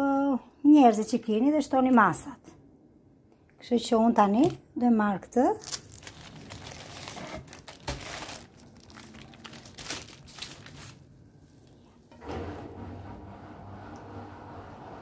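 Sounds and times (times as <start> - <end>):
baking paper crinkling: 5.4 - 11.2.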